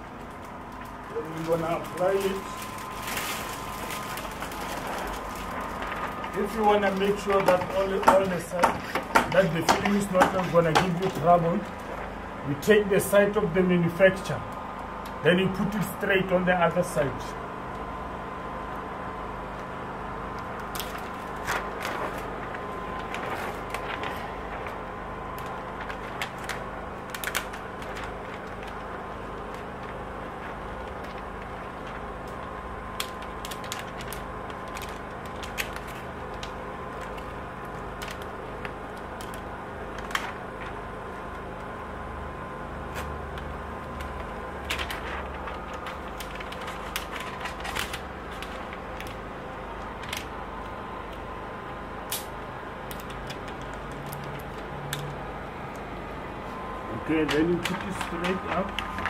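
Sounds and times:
plastic film crackling: 0.0 - 59.0
steady background hum: 0.0 - 59.0.

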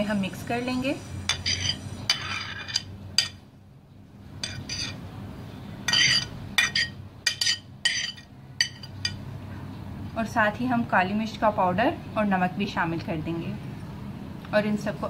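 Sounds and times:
utensil scraping ceramic plate: 1.3 - 3.3, 4.4 - 5.0, 5.9 - 9.2.

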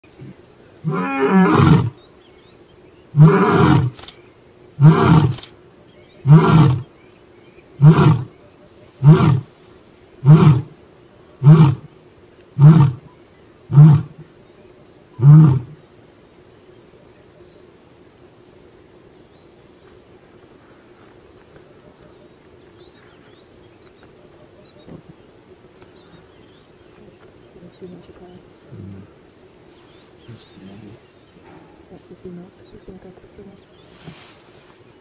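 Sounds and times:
lion roaring: 0.8 - 2.0, 3.2 - 4.0, 4.8 - 5.5, 6.2 - 6.9, 7.8 - 8.3, 9.0 - 9.5, 10.2 - 10.7, 11.4 - 11.9, 12.6 - 13.1, 13.7 - 14.2, 15.2 - 15.8.

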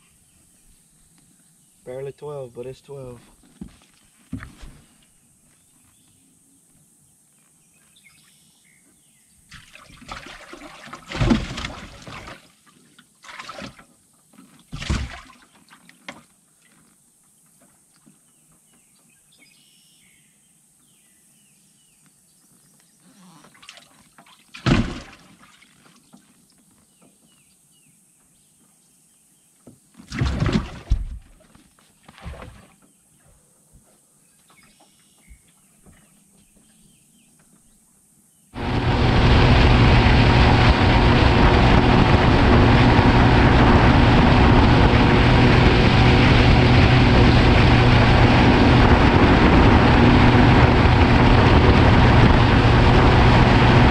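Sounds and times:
water splashing and trickling: 9.5 - 16.8, 23.4 - 26.4, 30.1 - 32.8.

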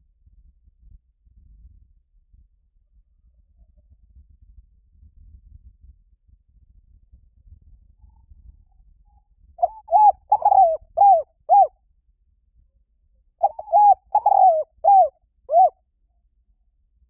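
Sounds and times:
dove cooing: 9.6 - 11.7, 13.4 - 15.7.

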